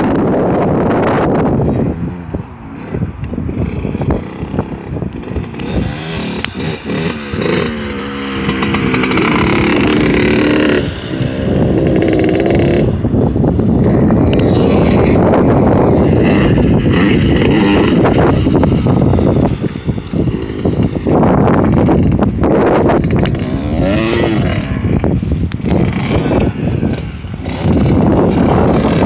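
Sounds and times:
dirt bike engine revving: 0.0s - 29.0s
wind buffeting microphone: 0.0s - 29.0s.

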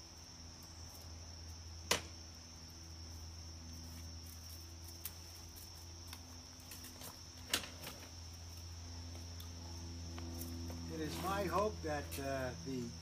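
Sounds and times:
crickets chirping: 0.0s - 13.0s
low hum: 0.0s - 13.0s.

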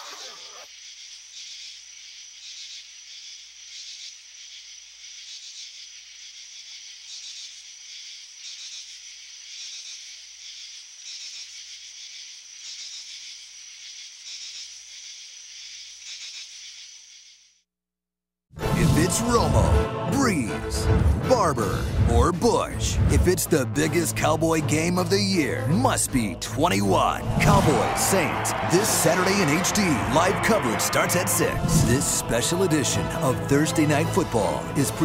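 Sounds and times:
night insects chirping: 0.0s - 17.5s.

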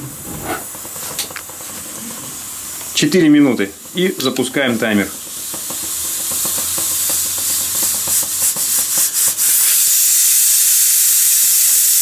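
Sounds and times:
pressure cooker hissing steam: 0.0s - 12.0s.

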